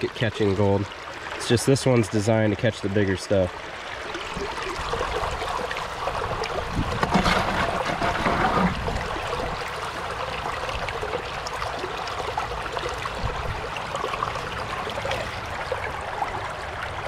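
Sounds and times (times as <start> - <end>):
water rushing through sluice box: 0.0 - 17.0
sand and gravel washing: 7.1 - 8.8.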